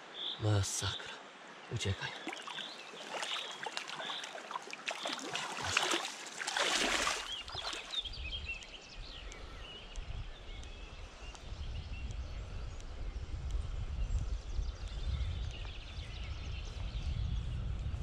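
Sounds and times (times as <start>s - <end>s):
water splashing and sloshing: 2.0s - 8.0s.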